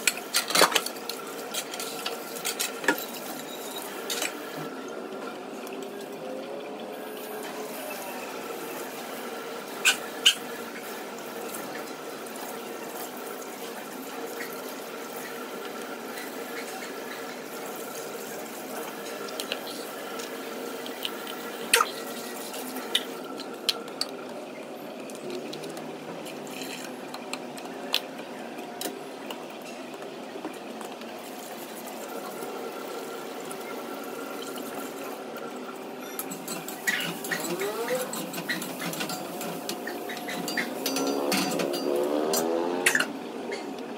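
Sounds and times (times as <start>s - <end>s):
running water: 0.0s - 43.9s
utensils clinking against dish: 36.0s - 43.1s.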